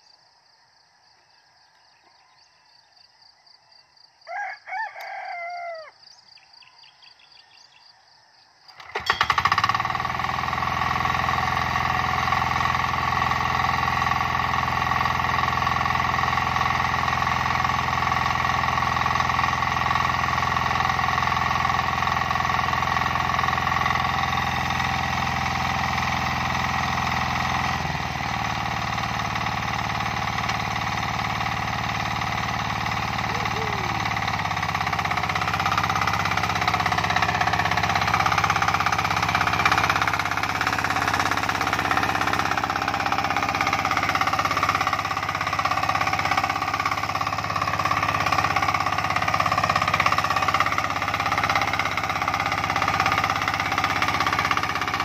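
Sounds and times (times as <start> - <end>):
faint insect whine: 0.0 - 8.7
rooster crowing: 4.2 - 6.1
hand tractor engine running: 8.7 - 55.0.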